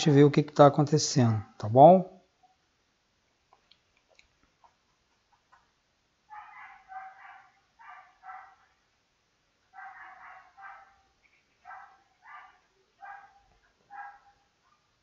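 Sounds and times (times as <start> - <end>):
dog barking: 6.3 - 8.8, 9.7 - 15.0.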